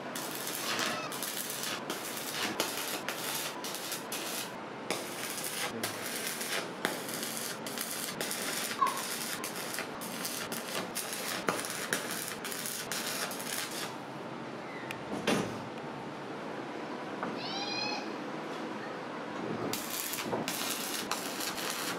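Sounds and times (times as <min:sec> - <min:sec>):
welding arc crackling: 0:00.0 - 0:14.0, 0:19.7 - 0:21.9.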